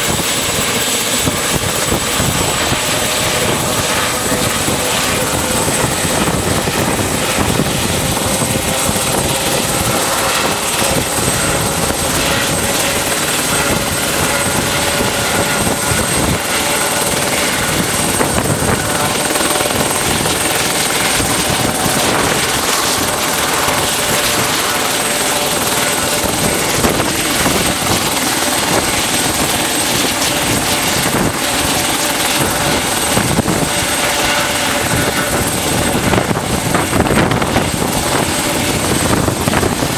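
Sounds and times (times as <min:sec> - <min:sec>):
helicopter rotor rush: 0:00.0 - 0:39.9
helicopter turbine whine: 0:00.0 - 0:39.9.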